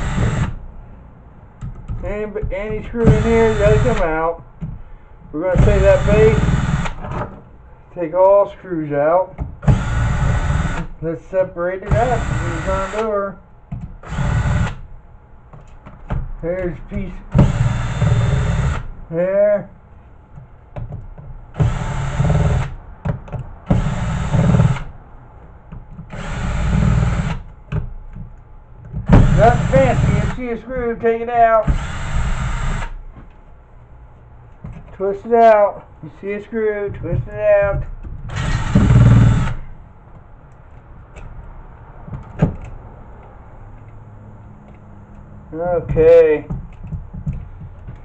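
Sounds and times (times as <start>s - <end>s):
cordless drill running: 0.0s - 0.6s, 3.0s - 4.1s, 5.6s - 7.0s, 9.7s - 10.9s, 11.9s - 13.1s, 14.0s - 14.8s, 17.4s - 18.9s, 21.6s - 22.7s, 26.1s - 27.4s, 29.1s - 30.4s, 31.6s - 32.9s, 38.3s - 39.6s.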